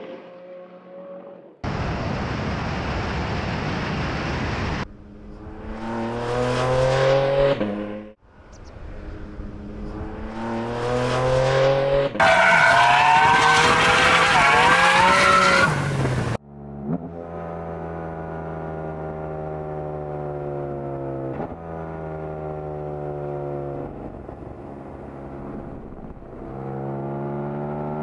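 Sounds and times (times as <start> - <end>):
race car engine at full throttle: 2.8 - 28.0
tyre squeal: 12.2 - 15.8.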